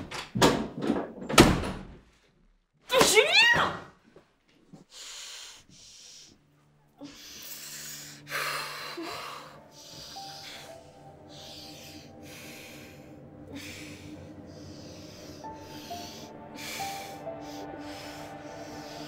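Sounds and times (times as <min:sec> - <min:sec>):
film score held tones: 0:04.8 - 0:19.0
woman breathing hard: 0:04.8 - 0:19.0
woman gasping: 0:07.0 - 0:19.0.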